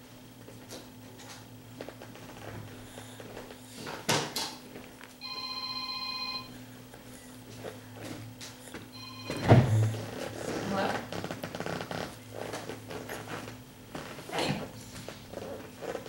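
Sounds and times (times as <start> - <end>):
electronic ringing tone: 5.2 - 6.6, 8.9 - 10.2.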